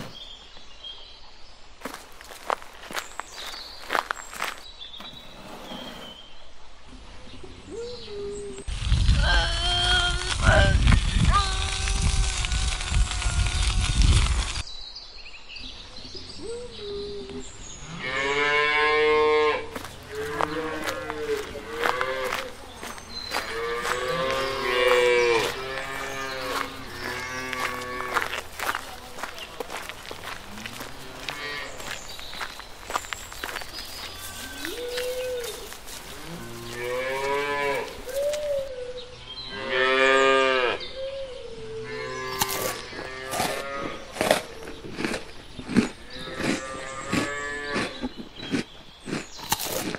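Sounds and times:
cows mooing: 0:18.0 - 0:22.6, 0:23.3 - 0:28.4, 0:30.5 - 0:31.9, 0:34.2 - 0:38.1
rough rustling noise: 0:19.7 - 0:38.7
cow mooing: 0:36.2 - 0:38.0.

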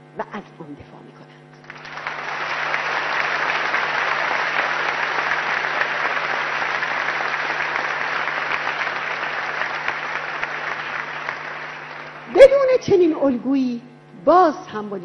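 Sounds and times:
audience applauding: 0:01.6 - 0:12.7.

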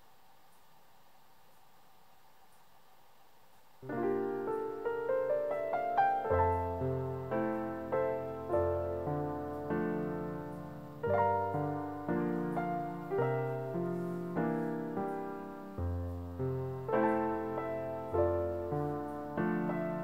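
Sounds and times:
calm solo piano: 0:03.8 - 0:20.0.

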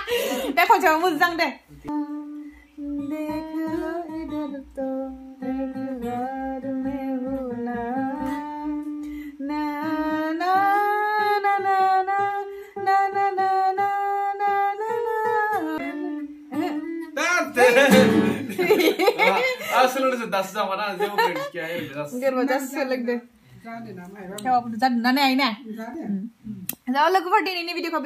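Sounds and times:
person singing slow melody: 0:01.7 - 0:18.5
acoustic guitar strumming: 0:01.8 - 0:13.2, 0:14.8 - 0:19.1.

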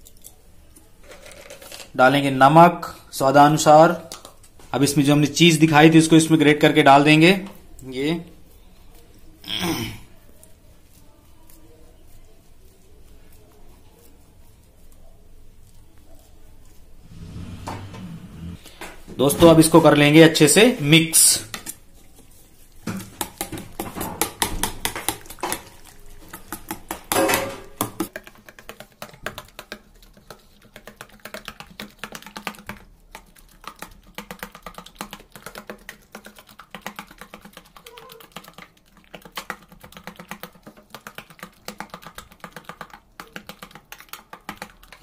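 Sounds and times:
metal spoon clinking in bowl: 0:27.1 - 0:27.8.

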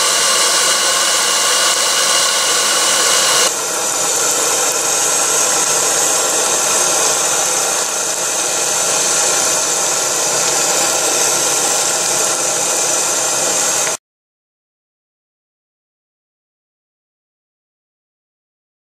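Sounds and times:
steam hissing: 0:00.0 - 0:14.0.

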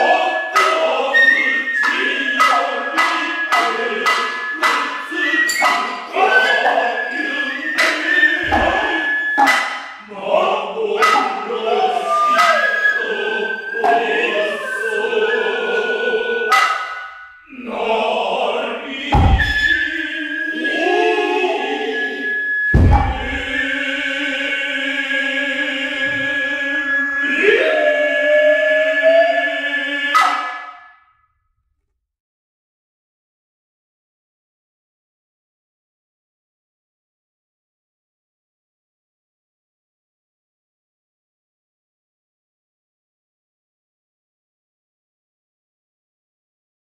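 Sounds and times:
high flute line: 0:00.0 - 0:10.1, 0:11.0 - 0:17.4, 0:19.1 - 0:24.7, 0:25.3 - 0:30.8
chorus chanting: 0:00.0 - 0:30.9
heavy thuds: 0:08.4 - 0:08.9, 0:19.1 - 0:20.0, 0:22.8 - 0:23.8
sharp drum strikes: 0:19.1 - 0:19.8, 0:22.8 - 0:23.7.

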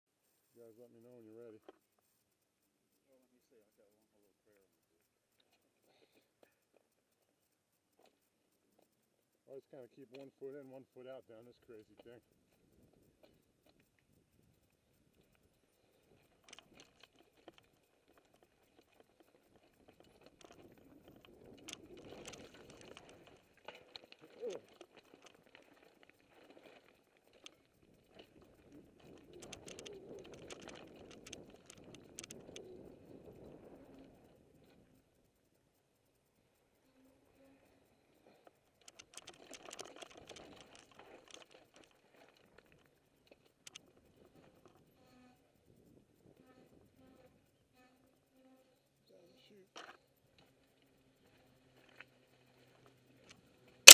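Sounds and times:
bike clicks and rattles: 0:16.0 - 0:33.5, 0:38.7 - 0:43.8.

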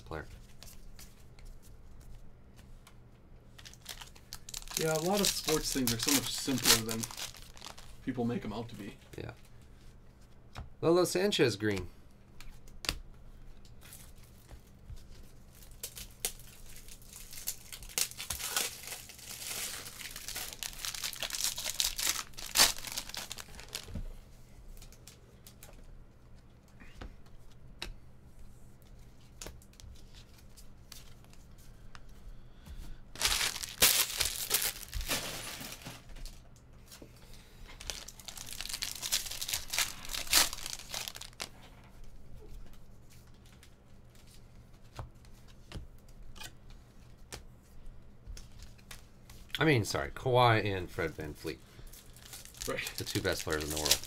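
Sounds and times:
cards shuffling and rustling: 0:00.4 - 0:08.2, 0:13.8 - 0:24.0, 0:33.2 - 0:37.0, 0:37.7 - 0:41.5, 0:51.4 - 0:54.0.

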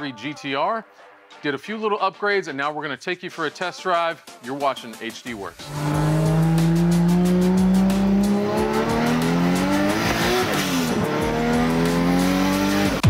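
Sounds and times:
car engine accelerating hard: 0:05.6 - 0:13.0.

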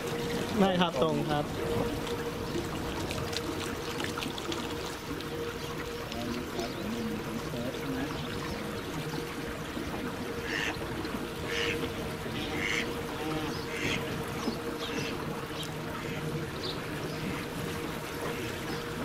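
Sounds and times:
boat motor humming: 0:00.0 - 0:19.0
duck quacking: 0:10.4 - 0:10.8, 0:11.5 - 0:14.0.

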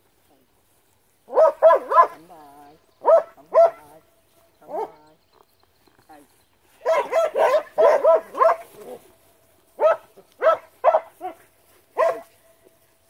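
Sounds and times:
young dog barking: 0:01.3 - 0:02.2, 0:03.0 - 0:03.8, 0:06.8 - 0:09.0, 0:09.8 - 0:12.4.

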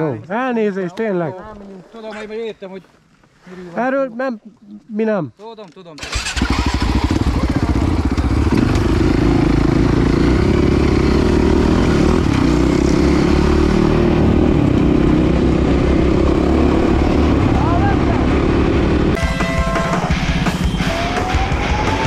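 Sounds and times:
dirt bike engine running: 0:06.0 - 0:22.0.

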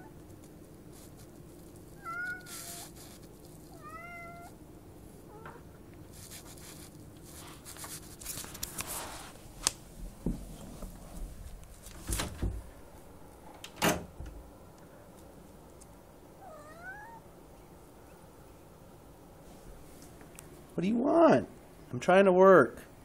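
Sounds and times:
rustling: 0:00.0 - 0:13.5
cat meowing: 0:02.0 - 0:03.0, 0:03.7 - 0:04.6, 0:16.4 - 0:17.3.

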